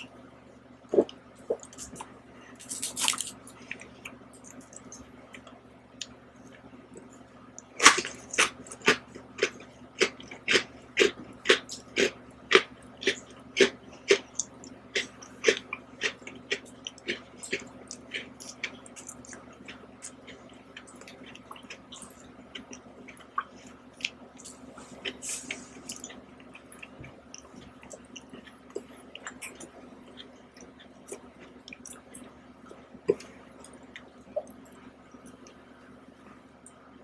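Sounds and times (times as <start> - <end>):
close chewing and wet mouth sounds: 8.2 - 35.6.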